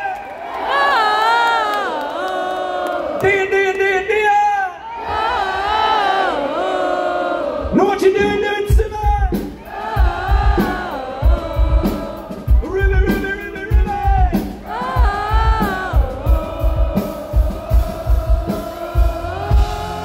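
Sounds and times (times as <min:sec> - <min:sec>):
live rock band: 0:08.2 - 0:20.0
person singing: 0:09.6 - 0:20.0.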